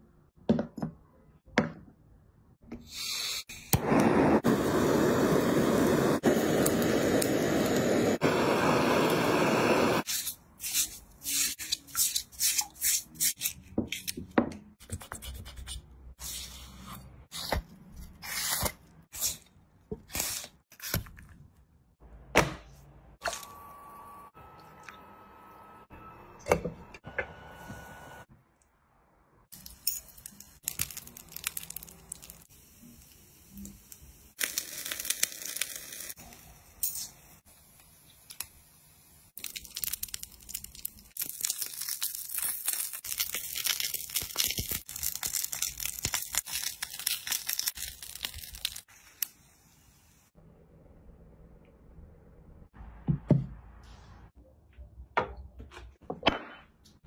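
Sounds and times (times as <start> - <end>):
food sizzling over charcoal: 3.8 - 10.1, 29.6 - 50.3
aluminium foil crinkling: 30.2 - 32.5, 39.4 - 49.3.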